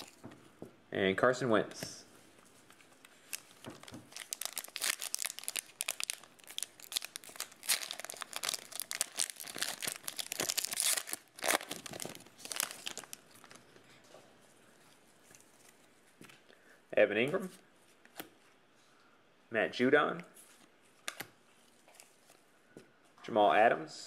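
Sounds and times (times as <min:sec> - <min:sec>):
plastic wrapper crinkling: 0:00.0 - 0:00.2, 0:02.6 - 0:13.8.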